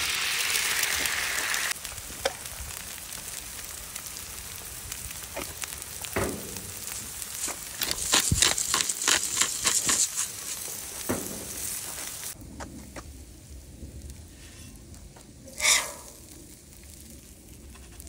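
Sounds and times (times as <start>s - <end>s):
crackles and pops: 0.0s - 18.0s
eggs sizzling on a griddle: 0.0s - 18.0s.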